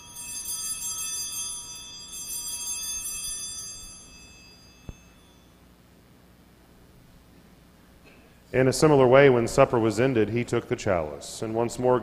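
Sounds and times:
small bells jingling: 0.0 - 5.6.

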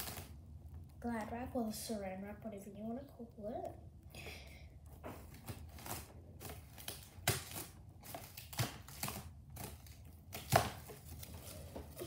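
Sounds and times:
cling wrap crinkling: 0.0 - 0.5.

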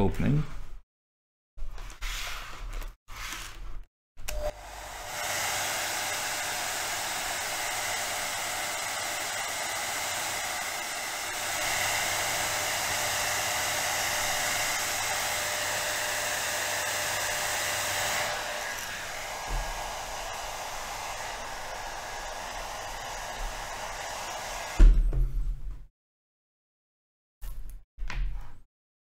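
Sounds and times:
hot-air blower running: 4.3 - 25.0.

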